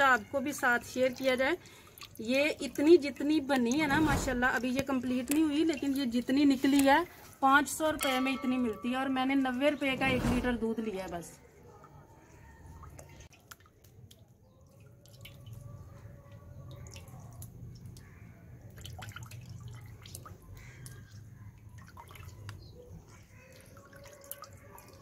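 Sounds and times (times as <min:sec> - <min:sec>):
liquid dripping into a pot: 0:11.8 - 0:25.0.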